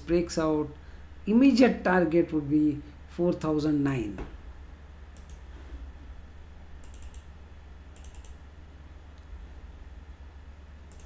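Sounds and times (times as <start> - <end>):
low steady hum: 0.0 - 11.0
computer keyboard keys tapping: 6.8 - 7.3, 8.0 - 8.4.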